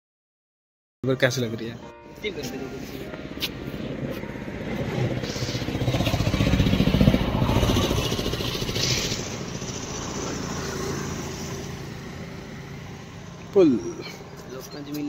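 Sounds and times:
vehicle engine passing by: 3.4 - 15.0.

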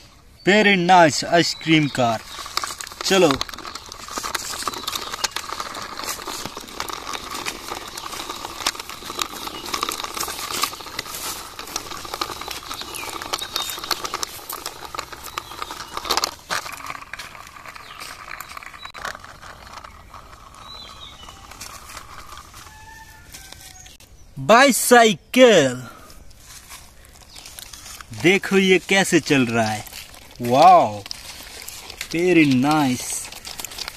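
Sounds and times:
toy wheels scraping on concrete: 0.9 - 24.1, 26.0 - 33.9.

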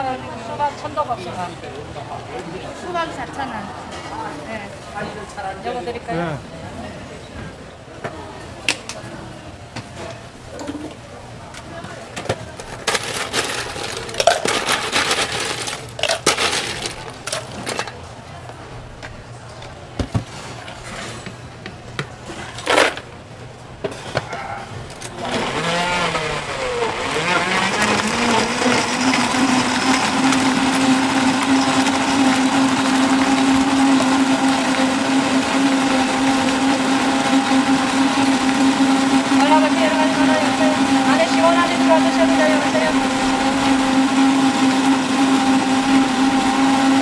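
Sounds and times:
blender whining: 24.9 - 47.0.

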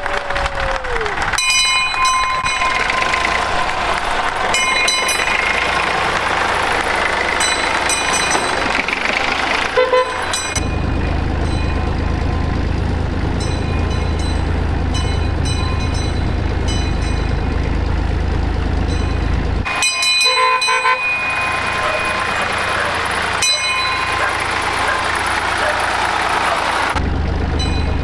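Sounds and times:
tractor diesel engine running: 0.0 - 28.0
handbell ringing: 1.4 - 3.4, 4.6 - 5.5, 7.4 - 8.6, 10.3 - 10.8, 13.4 - 17.4, 18.9 - 22.4, 23.4 - 24.4.

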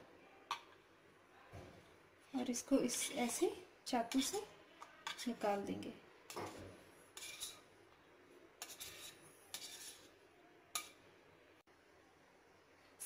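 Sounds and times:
knife scraping wooden board: 6.3 - 7.6, 8.6 - 10.1.

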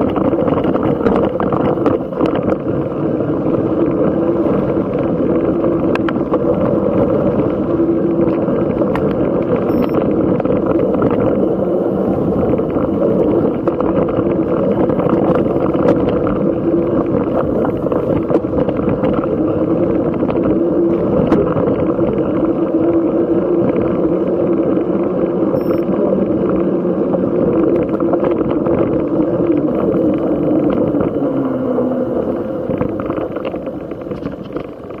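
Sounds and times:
tyre and wind rush: 0.0 - 35.0.

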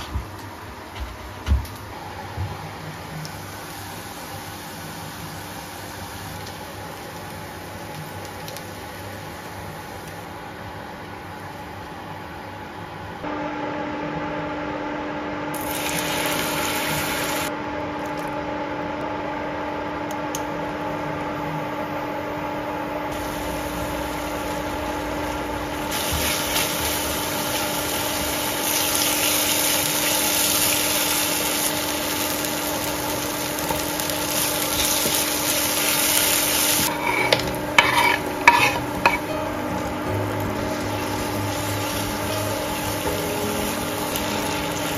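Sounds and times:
steady low hum: 8.8 - 30.0
paste sizzling in oil: 25.9 - 39.2
spatula stirring in pan: 36.8 - 39.2.

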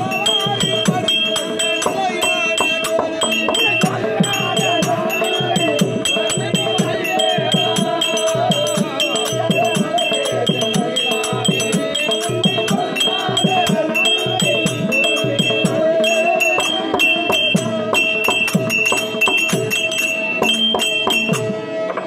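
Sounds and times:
small hand cymbals: 0.0 - 21.6.

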